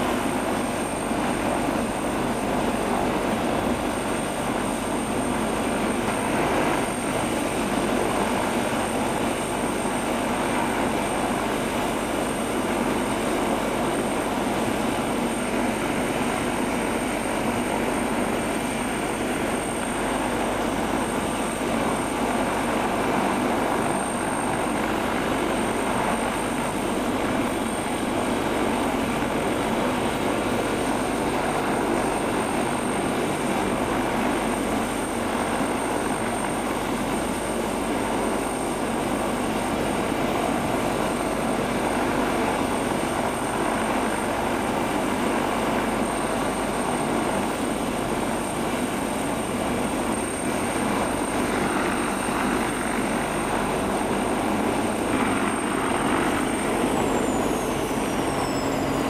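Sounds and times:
helicopter engine and rotor noise: 0:00.0 - 0:59.0
thin high whine: 0:50.5 - 0:59.0.

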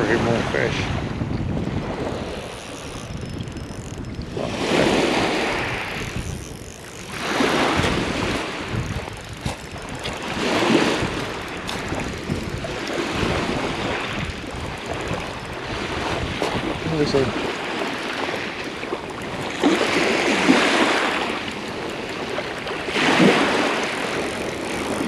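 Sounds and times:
waves washing up shingle beach: 0:04.4 - 0:06.2, 0:07.1 - 0:08.8, 0:09.4 - 0:25.0.

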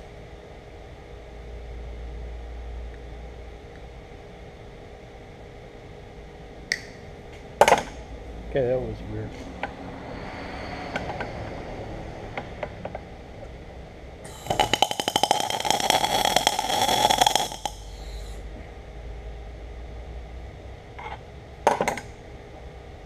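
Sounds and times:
welder arc crackling: 0:14.2 - 0:18.4.

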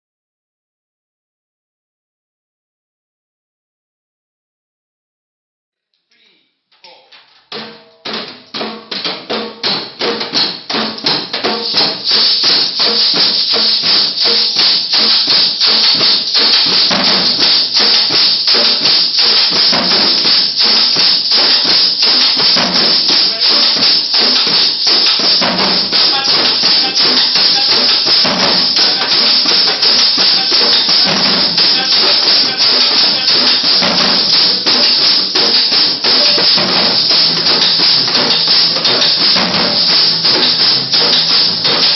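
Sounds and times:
hand drums playing fast rhythm: 0:07.5 - 0:41.9
shaker: 0:11.3 - 0:41.9.

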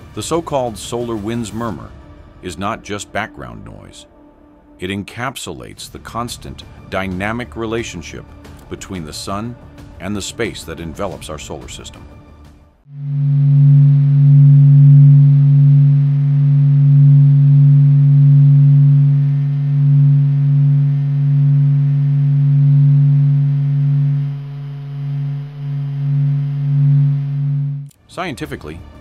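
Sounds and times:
low electronic hum: 0:12.9 - 0:28.0.

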